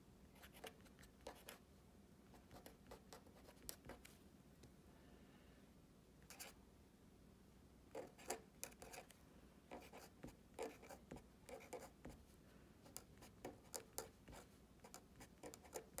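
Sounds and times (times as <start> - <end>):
pen scratching on paper: 7.9 - 9.1, 9.7 - 12.2, 12.9 - 16.0.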